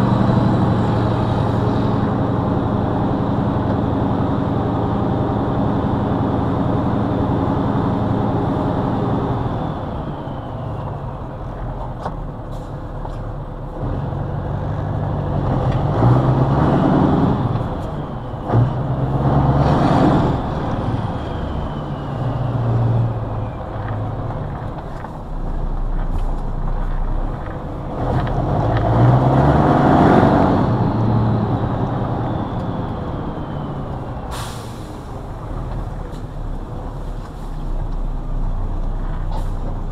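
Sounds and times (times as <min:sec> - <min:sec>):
diesel truck engine accelerating: 0:00.0 - 0:39.9
faint falling whistles: 0:20.2 - 0:23.6.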